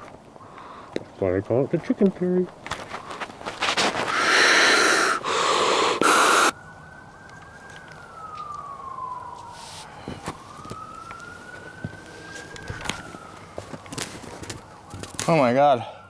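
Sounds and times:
bursts of hiss-like noise: 4.0s - 6.5s
wailing siren: 4.1s - 16.0s.

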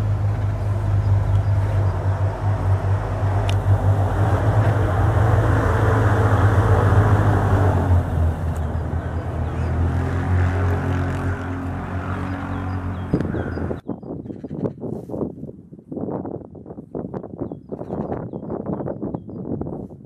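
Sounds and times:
passing vehicle rumble: 0.0s - 13.8s.

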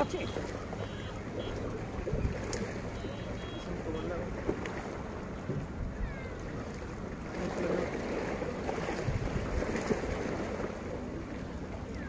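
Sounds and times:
sea waves against rocks: 0.0s - 12.0s
wind on the microphone: 1.9s - 2.6s, 5.4s - 10.7s.

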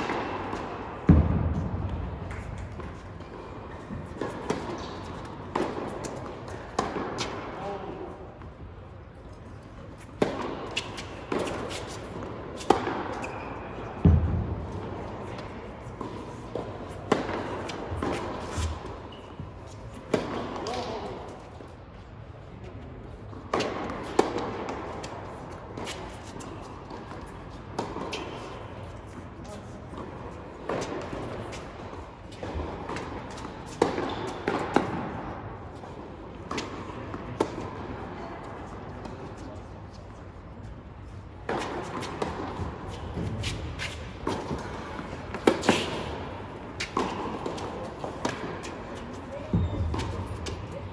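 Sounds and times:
tennis racket hitting ball: 0.0s - 7.5s, 10.0s - 21.2s, 23.5s - 28.6s, 29.9s - 35.3s, 36.4s - 37.8s, 41.4s - 49.2s.

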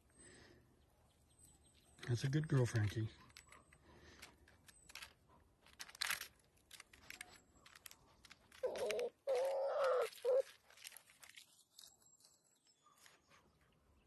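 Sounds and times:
claws scratching on tree bark: 4.9s - 12.2s
bear cub calling: 8.6s - 10.6s.

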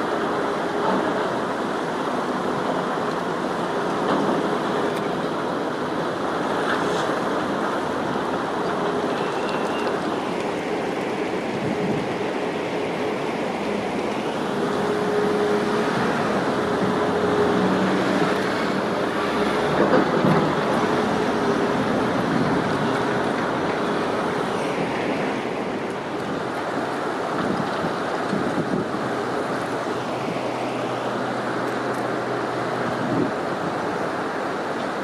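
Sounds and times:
constant rushing noise: 0.0s - 35.0s
construction machinery engine hum: 0.0s - 35.0s.

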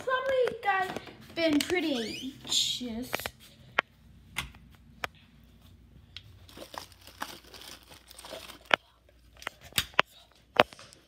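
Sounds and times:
rustling handling noise: 4.6s - 9.7s.

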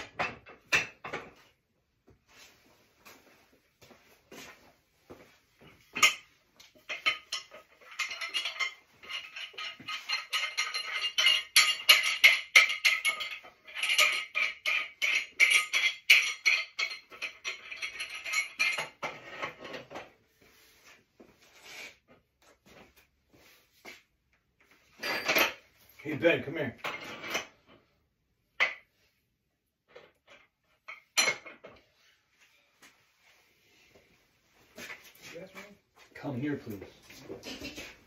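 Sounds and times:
steel parts clinking and rattling: 5.8s - 20.1s, 24.9s - 26.2s.

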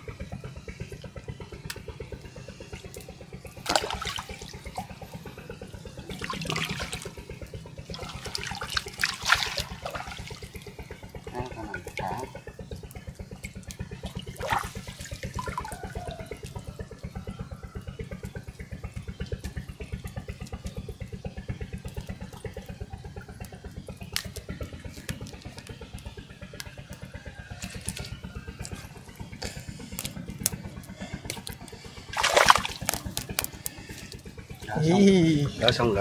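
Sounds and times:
small motor chugging: 0.0s - 36.0s
water splashing and dripping: 3.6s - 5.2s, 6.0s - 12.4s, 13.4s - 16.6s, 31.4s - 33.5s.

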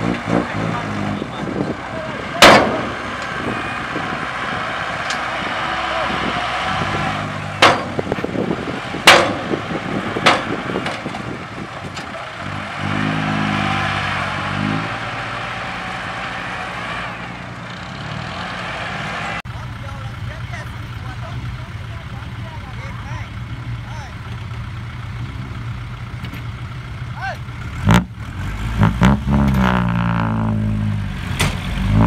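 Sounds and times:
loud metal bangs: 0.0s - 17.4s
diesel truck engine running: 0.0s - 32.0s.

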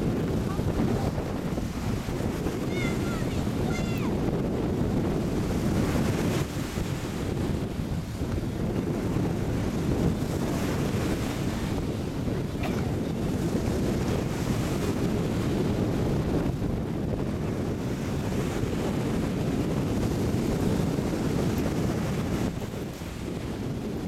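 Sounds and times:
surf breaking on beach: 0.0s - 24.0s
wind buffeting microphone: 0.0s - 24.0s.

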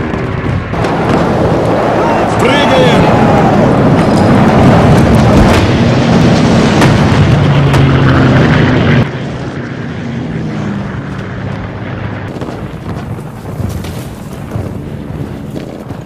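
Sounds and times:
explosions booming: 0.0s - 9.1s, 12.2s - 16.0s
propeller engines droning: 0.0s - 16.0s
rushing noise: 0.0s - 16.0s.

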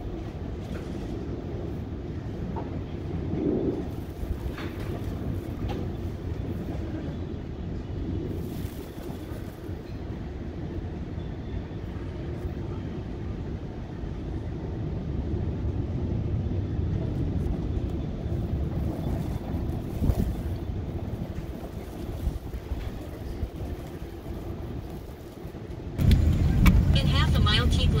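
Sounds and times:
car road and engine rumble: 12.1s - 28.0s.

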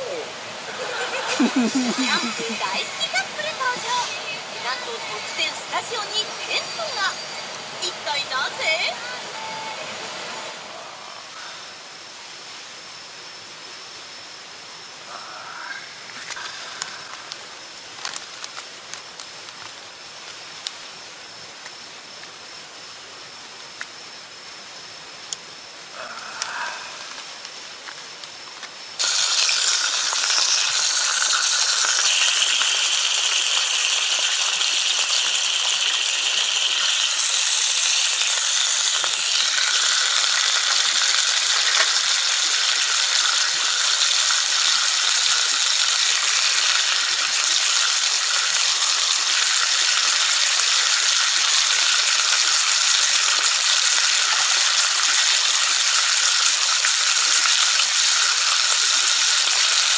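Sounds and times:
meat sizzling in a frying pan: 29.0s - 59.9s.

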